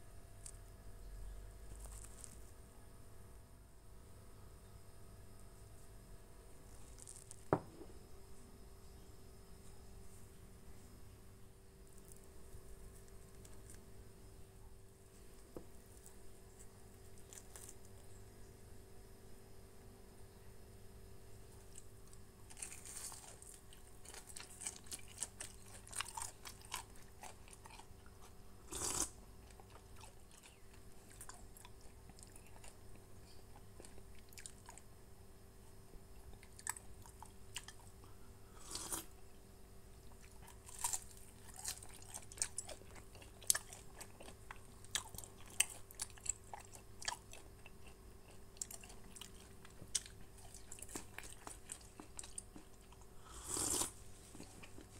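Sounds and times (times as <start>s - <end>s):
person chewing food: 22.5s - 34.9s, 36.1s - 39.1s, 40.0s - 54.9s.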